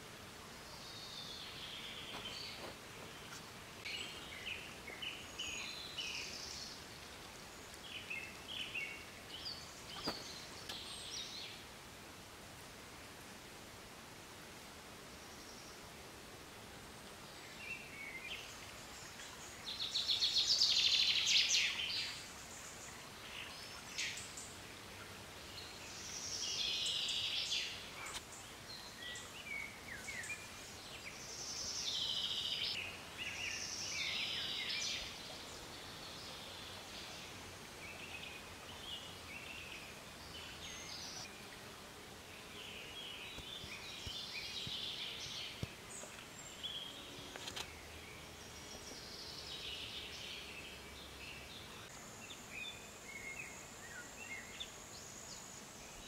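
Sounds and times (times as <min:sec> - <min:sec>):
birds chirping and warbling: 0:07.5 - 0:11.6, 0:17.3 - 0:41.7.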